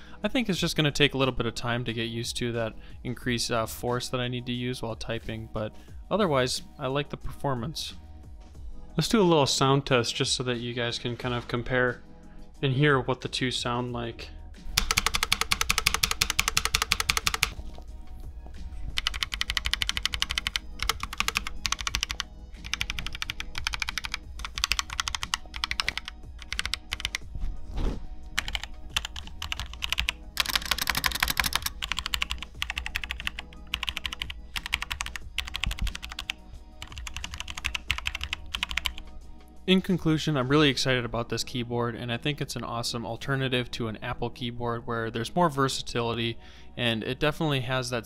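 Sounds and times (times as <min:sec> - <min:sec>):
background music: 0:00.0 - 0:48.0
mechanical keyboard key clicks: 0:14.8 - 0:17.6, 0:19.0 - 0:27.2, 0:28.4 - 0:39.0.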